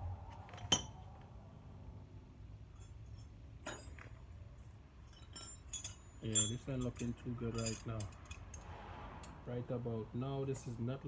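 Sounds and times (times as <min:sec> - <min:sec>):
metallic clinks of hand tools: 0:05.0 - 0:08.6.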